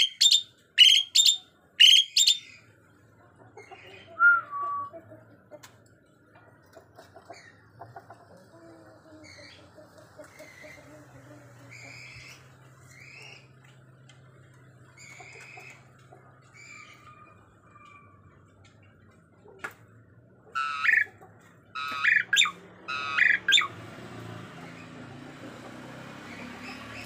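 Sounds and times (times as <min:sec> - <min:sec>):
starling harsh squawks: 0:00.0 - 0:02.6, 0:20.6 - 0:21.1, 0:21.8 - 0:23.7.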